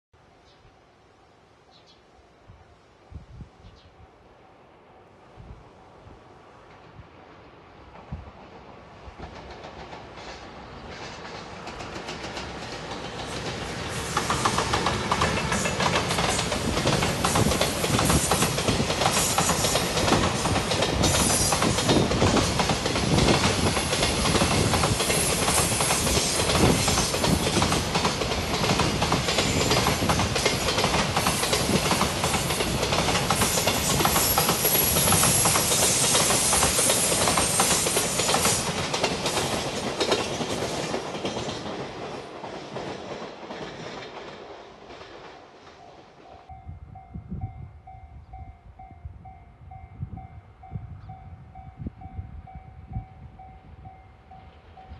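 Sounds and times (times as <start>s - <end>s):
train rushing noise: 4.2s - 47.6s
train wheels clattering over rails: 7.9s - 46.2s.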